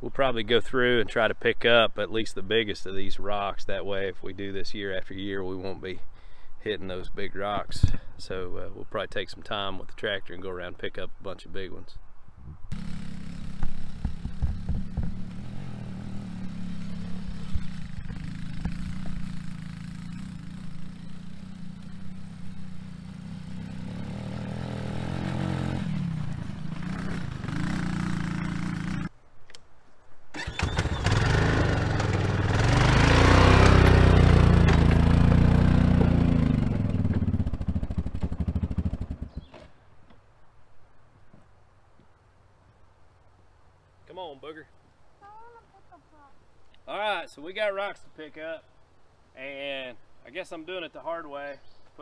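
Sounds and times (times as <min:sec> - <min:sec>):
small atv engine running: 0:12.7 - 0:29.1, 0:30.3 - 0:39.4
louder engine running: 0:30.7 - 0:38.9.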